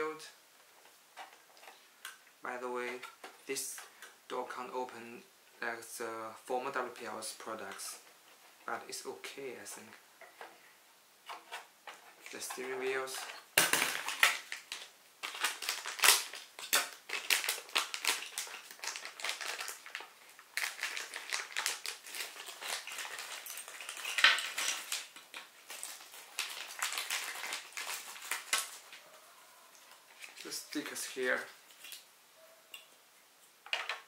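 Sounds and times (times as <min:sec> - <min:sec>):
plastic bag crinkling: 0:11.5 - 0:29.1, 0:29.7 - 0:32.0.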